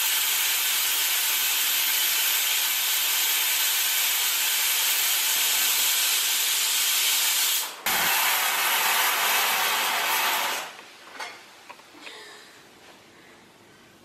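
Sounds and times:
pressure cooker whistle hissing: 0.0s - 8.7s.

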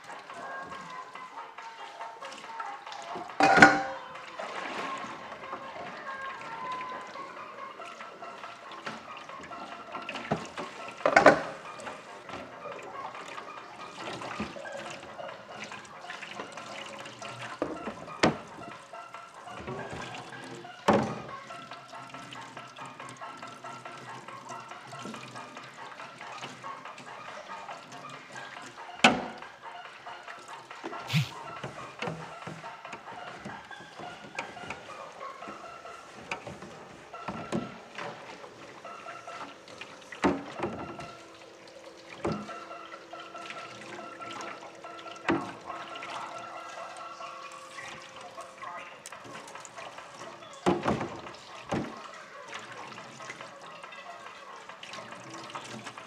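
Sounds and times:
water running in sink: 3.0s - 4.4s
dish clanking against sink: 3.4s - 4.0s
tap water running into sink: 3.4s - 4.0s.

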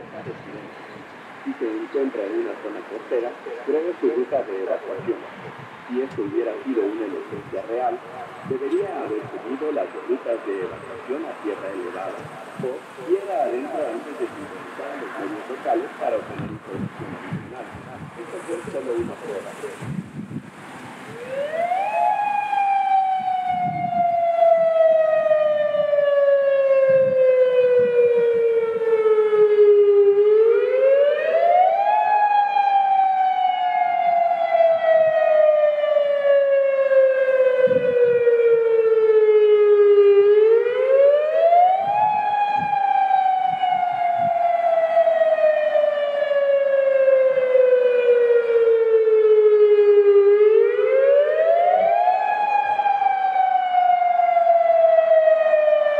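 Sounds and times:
electronic siren wailing: 21.1s - 55.9s.

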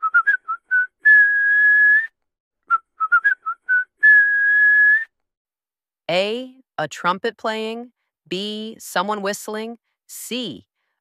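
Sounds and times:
person whistling a tune: 0.0s - 5.2s.

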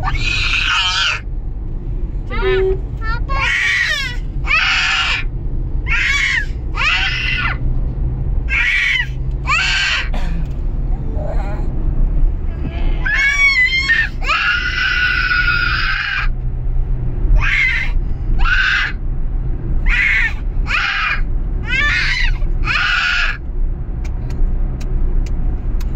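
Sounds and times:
child screaming: 0.0s - 1.2s, 3.4s - 5.2s, 5.9s - 7.6s, 8.5s - 10.1s, 13.0s - 16.3s, 17.4s - 19.0s, 19.9s - 23.4s
car cabin rumble: 0.0s - 25.9s.

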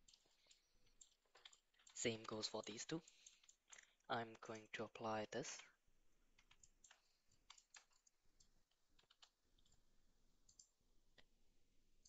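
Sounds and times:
mouse and keyboard clicks: 0.0s - 3.9s, 6.4s - 9.8s.

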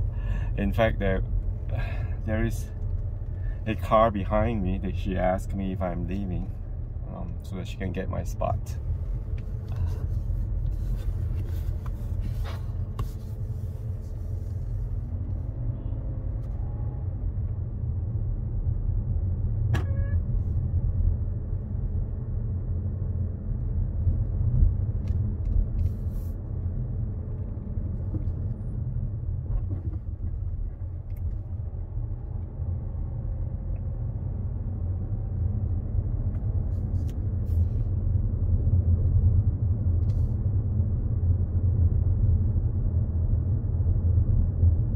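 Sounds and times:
car cabin rumble: 0.0s - 40.3s.

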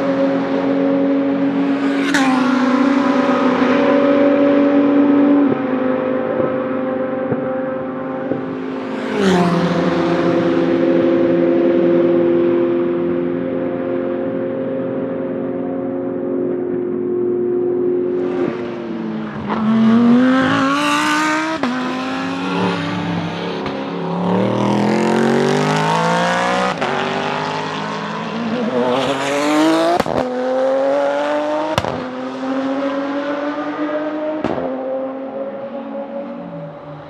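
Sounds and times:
race car engine revving: 17.8s - 37.0s.

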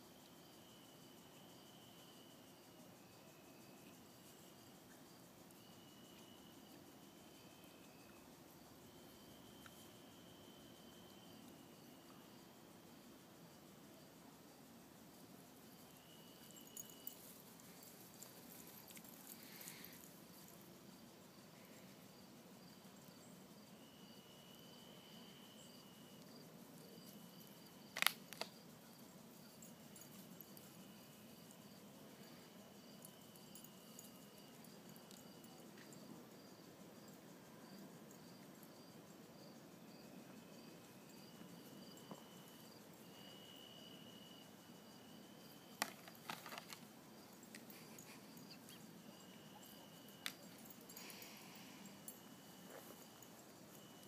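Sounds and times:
crickets chirping: 0.0s - 54.0s
high insect trill: 0.0s - 54.0s.

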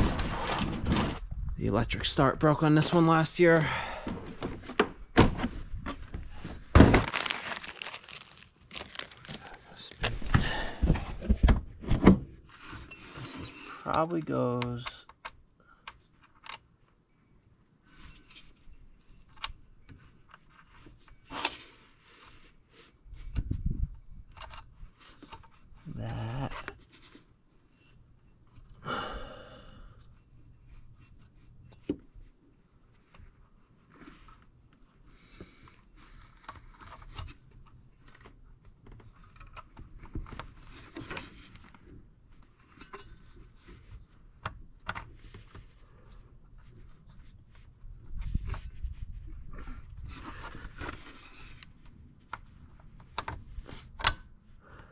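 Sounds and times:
breathing near microphone: 3.6s - 4.4s, 10.2s - 11.2s, 28.8s - 30.1s, 54.6s - 54.9s
handling clicks and scrapes: 17.8s - 28.7s, 30.1s - 54.3s.

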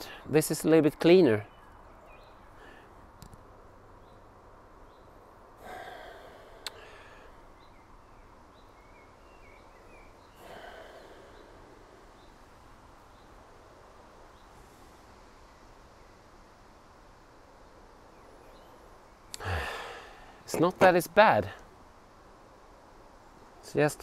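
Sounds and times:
faint bird chirps: 1.3s - 3.1s, 4.0s - 13.6s
person sniffing: 19.4s - 20.3s.

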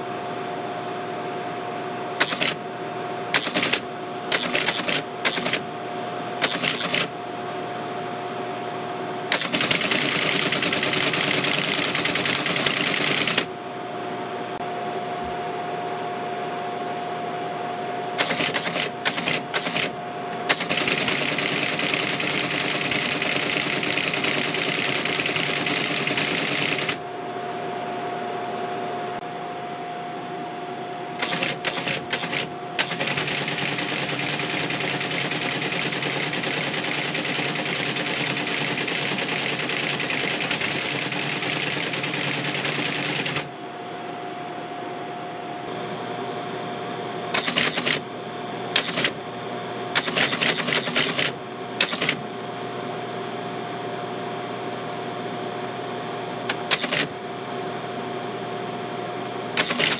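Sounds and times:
teletype printing clatter: 2.2s - 2.6s, 3.3s - 5.6s, 6.4s - 7.1s, 9.3s - 13.5s, 18.2s - 19.9s, 20.5s - 27.0s, 31.2s - 43.5s, 47.4s - 48.0s, 48.8s - 49.2s, 50.0s - 52.2s, 56.5s - 57.1s, 59.6s - 59.9s
motor hum: 17.3s - 52.5s.

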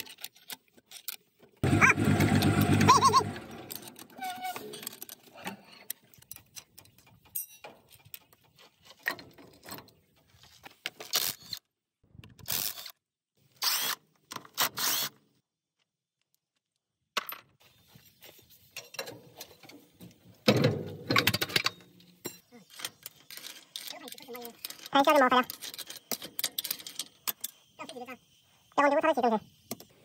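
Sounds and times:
metal clinks and knocks: 3.5s - 8.4s.

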